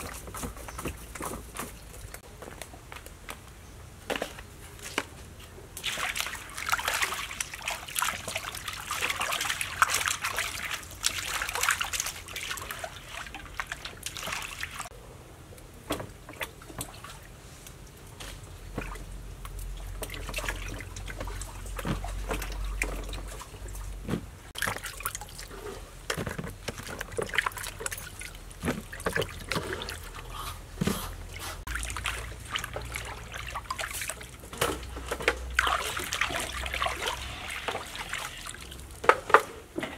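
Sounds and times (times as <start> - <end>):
water splashing in a metal basin: 5.8 - 15.0, 18.6 - 30.4, 31.6 - 39.9.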